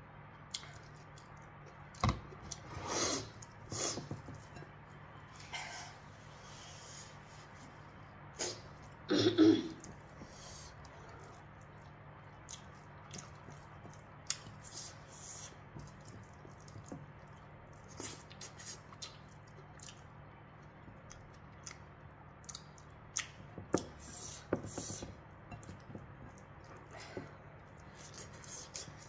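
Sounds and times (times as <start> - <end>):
faint low hum: 0.0 - 29.0
chewing and lip smacks: 0.5 - 2.6, 9.8 - 24.0.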